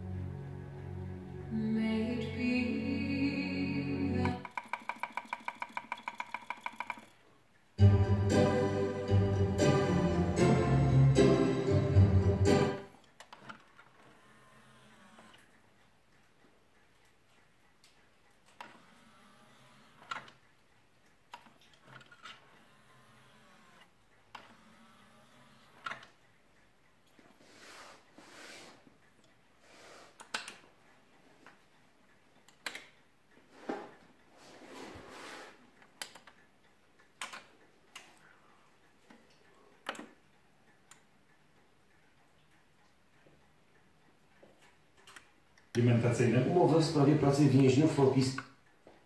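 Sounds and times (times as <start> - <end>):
mechanical switch clicks: 32.5 - 33.0, 37.0 - 38.1.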